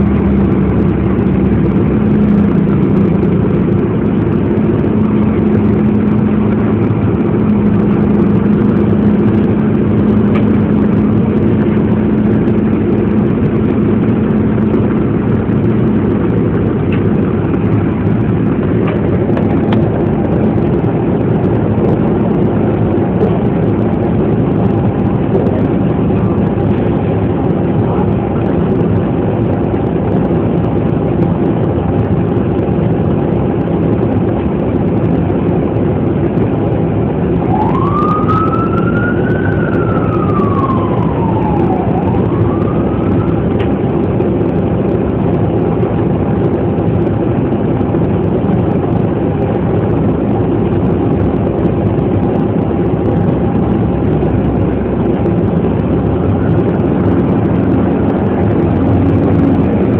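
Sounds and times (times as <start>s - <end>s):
low rumble inside vehicle: 0.0s - 59.9s
emergency siren wailing: 37.1s - 45.3s, 52.2s - 59.9s.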